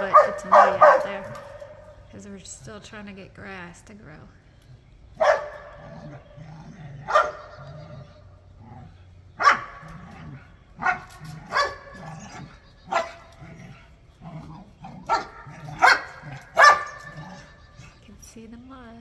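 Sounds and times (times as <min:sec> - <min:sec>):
dog barking: 0:00.0 - 0:01.9, 0:05.2 - 0:06.0, 0:07.1 - 0:07.8, 0:09.4 - 0:10.2, 0:10.8 - 0:13.6, 0:15.0 - 0:17.6.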